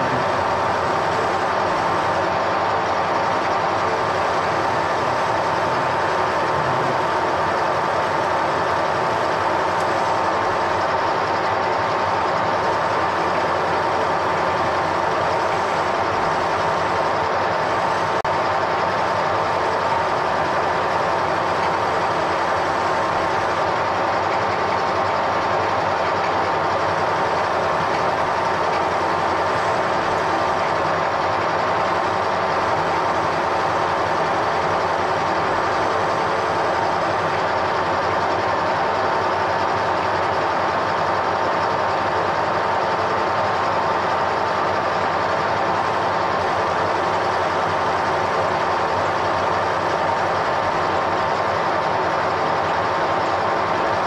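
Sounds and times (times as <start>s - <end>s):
machine tool droning with whine: 0.0s - 54.0s.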